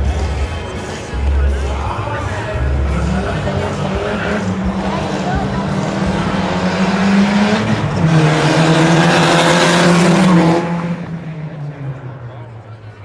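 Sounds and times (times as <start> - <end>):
cars accelerating at high revs: 2.8 - 12.2.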